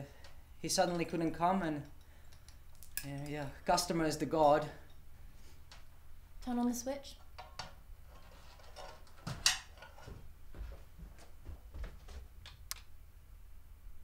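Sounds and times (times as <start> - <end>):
footsteps on floor: 9.2 - 12.3.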